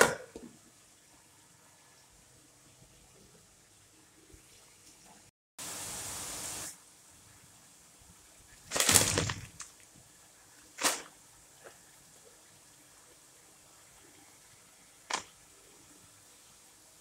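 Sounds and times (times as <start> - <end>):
steady hiss: 0.0 - 17.0
plastic bag crinkling: 8.6 - 9.9, 10.6 - 11.1.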